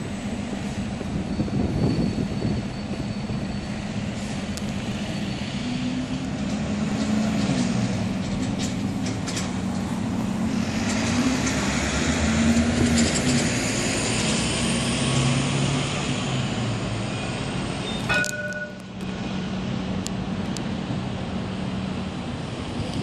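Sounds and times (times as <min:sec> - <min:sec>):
city traffic: 0:00.0 - 0:23.0
tram electric hum and rolling: 0:00.0 - 0:23.0
short high beep: 0:17.8 - 0:18.8.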